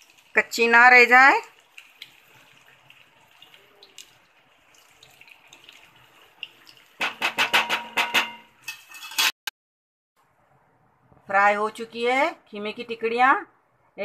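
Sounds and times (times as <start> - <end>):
hot oil sizzling and crackling: 0.0 - 9.3.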